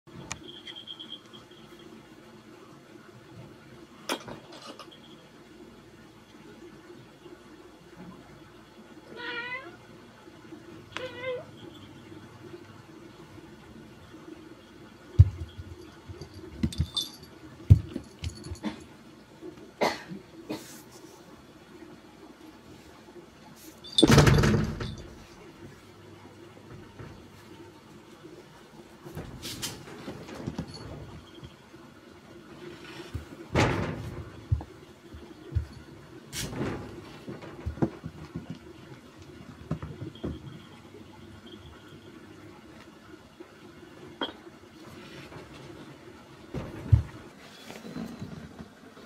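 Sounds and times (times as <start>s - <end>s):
collar bell jingling: 15.8s - 18.6s.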